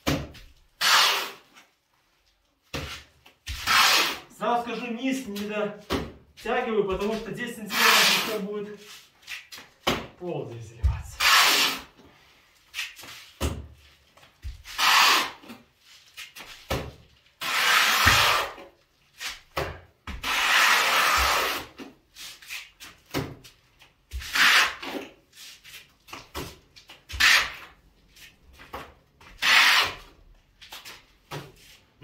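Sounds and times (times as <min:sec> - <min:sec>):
plastering rule scraping plaster: 0:00.3 - 0:01.8, 0:02.6 - 0:09.8, 0:10.8 - 0:12.0, 0:12.6 - 0:31.9.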